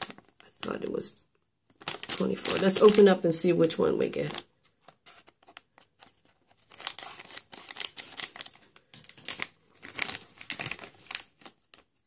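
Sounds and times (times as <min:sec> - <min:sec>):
foil plastic bag crackling: 0:01.8 - 0:04.5, 0:06.6 - 0:11.9.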